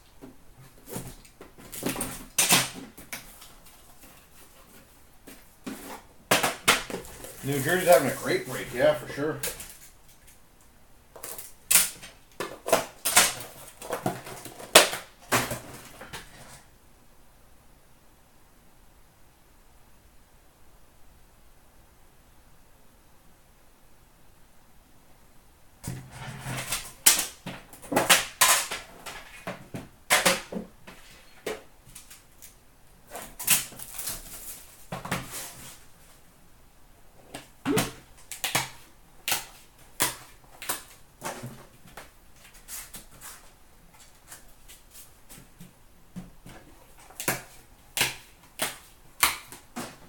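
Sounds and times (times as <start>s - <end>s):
cards handled on glass counter: 5.3s - 10.4s.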